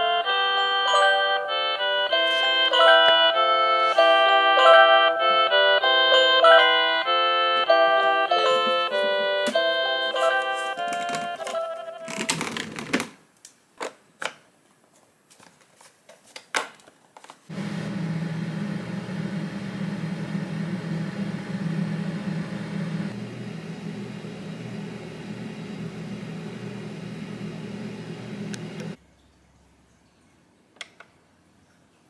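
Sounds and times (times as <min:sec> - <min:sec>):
blower rushing air with hum: 0:17.5 - 0:29.0.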